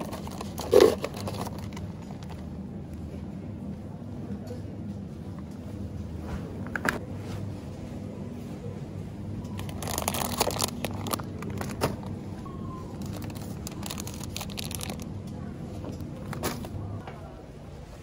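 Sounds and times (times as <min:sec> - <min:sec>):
plastic bags crinkling: 0:00.0 - 0:02.5, 0:09.6 - 0:12.1, 0:12.9 - 0:15.2
refrigerator low hum: 0:00.0 - 0:18.0.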